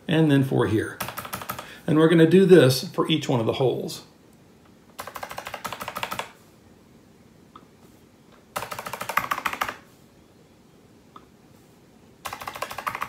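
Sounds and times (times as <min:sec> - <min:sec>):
keyboard keys tapping: 0:01.0 - 0:01.6, 0:08.6 - 0:09.8, 0:12.2 - 0:13.0.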